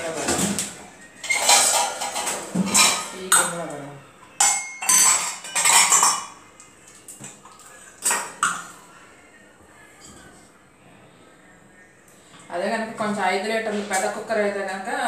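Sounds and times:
steel vessels clanking: 1.2 - 3.6, 4.4 - 6.4.

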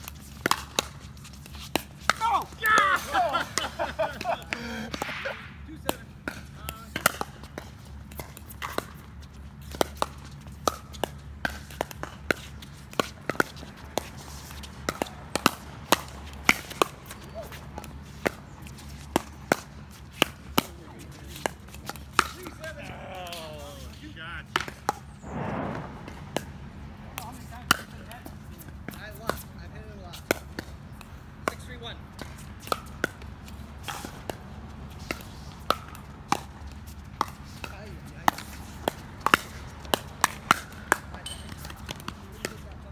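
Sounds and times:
paddles hitting plastic ball: 0.0 - 25.2, 27.1 - 42.7
ball bouncing on hard court: 24.5 - 29.5.

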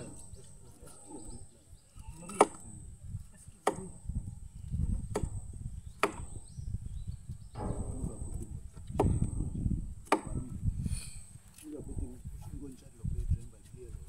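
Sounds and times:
knife chopping on wood: 2.3 - 2.6, 3.6 - 4.0, 5.1 - 5.4, 6.0 - 6.4, 9.0 - 9.3, 10.0 - 10.5.

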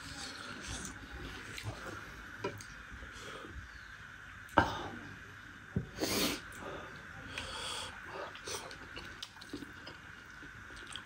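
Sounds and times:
quiet chewing: 0.0 - 2.8, 8.1 - 11.0.

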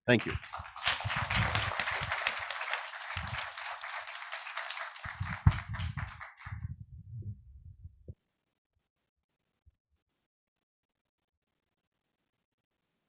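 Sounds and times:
audience applauding: 0.1 - 6.7.

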